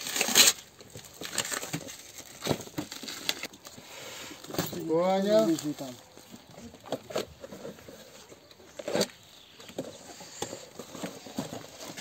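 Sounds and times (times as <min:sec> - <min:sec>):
plastic wrapping crinkling: 0:00.0 - 0:03.8.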